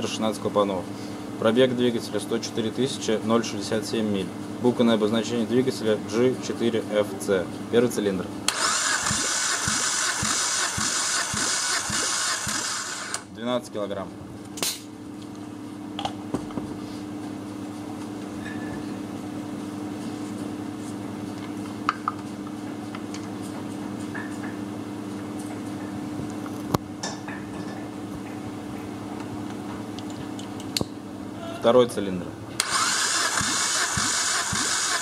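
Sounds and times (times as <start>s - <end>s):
steady hum: 7.2s - 14.9s.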